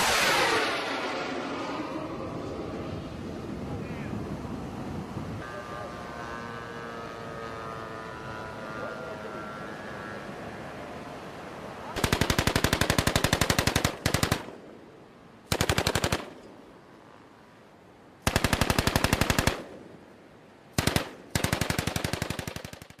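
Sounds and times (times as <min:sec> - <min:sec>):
machine gun firing bursts: 0:12.0 - 0:14.6, 0:15.5 - 0:16.4, 0:18.2 - 0:19.7, 0:20.8 - 0:23.0.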